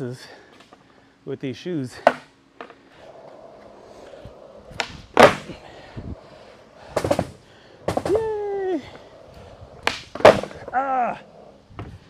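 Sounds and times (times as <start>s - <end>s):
skateboard clacking: 2.0s - 11.6s
skateboard wheels rolling on concrete: 2.0s - 12.0s.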